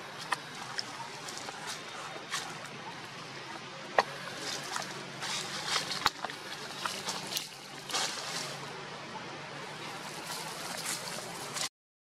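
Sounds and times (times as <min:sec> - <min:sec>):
dry leaves rustling and crunching: 0:00.0 - 0:02.8, 0:04.0 - 0:08.8, 0:09.6 - 0:11.7.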